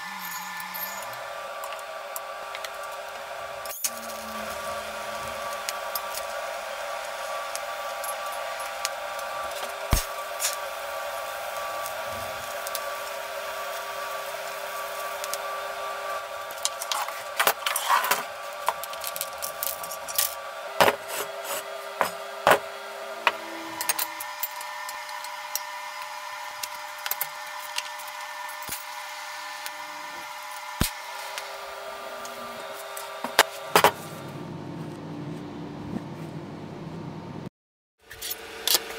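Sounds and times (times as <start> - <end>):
workshop hum: 0.0 - 38.9.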